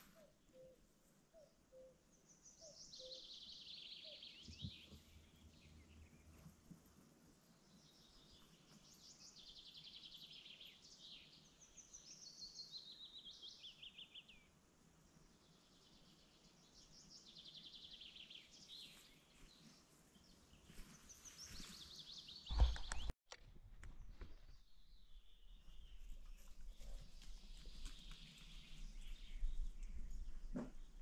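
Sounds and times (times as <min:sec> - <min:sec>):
songbirds singing trills: 0:00.1 - 0:06.4, 0:07.6 - 0:14.5, 0:15.2 - 0:23.1
short low thump: 0:22.5 - 0:23.1.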